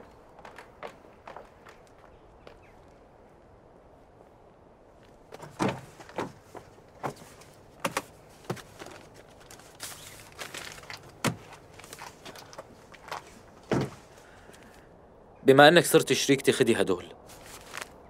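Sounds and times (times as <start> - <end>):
heavy thunk: 5.4 - 6.4, 13.7 - 14.0
truck door opening: 5.4 - 7.2, 13.6 - 14.1.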